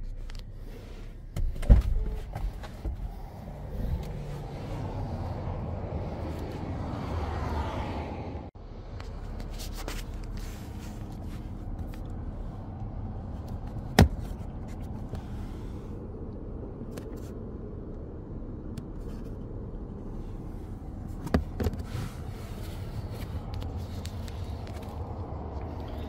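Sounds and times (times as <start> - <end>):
steady low rumble: 0.0 - 26.0.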